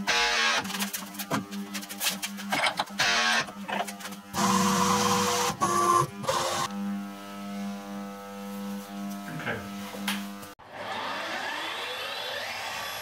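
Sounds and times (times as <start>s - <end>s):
milling machine running: 4.4s - 6.7s.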